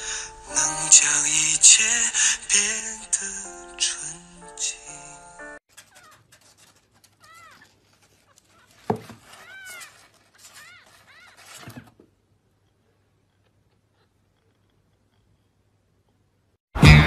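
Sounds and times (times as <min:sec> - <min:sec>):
cardboard rustling: 0:05.7 - 0:12.4.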